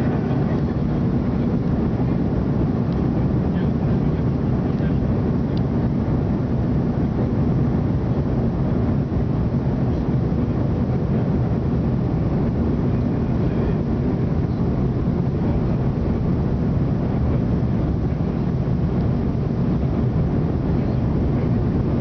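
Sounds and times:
jet engine rumble: 0.0s - 22.0s
rushing airflow: 0.0s - 22.0s.

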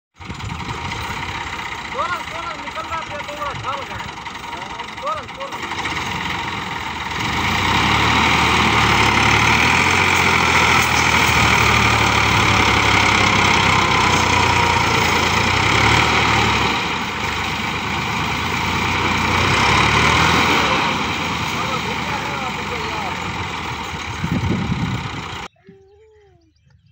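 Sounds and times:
tractor diesel engine under load: 0.1s - 25.5s.

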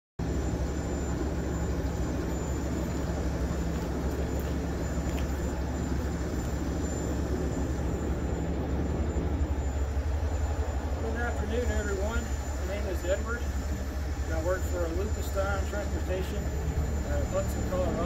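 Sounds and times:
diesel truck engine droning: 0.2s - 18.0s.

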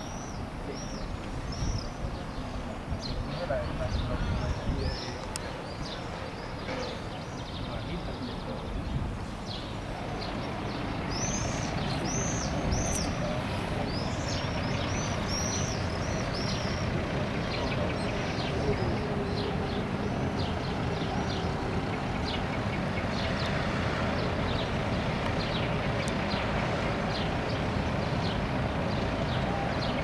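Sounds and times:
wind rumble on microphone: 0.0s - 6.1s, 7.4s - 30.0s
birds chirping: 0.0s - 30.0s.

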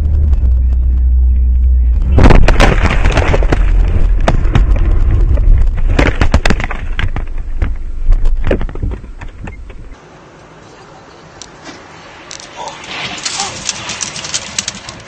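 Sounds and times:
heavy rumble: 0.0s - 10.0s
car crash bangs and clattering: 2.1s - 4.8s, 5.6s - 9.4s.

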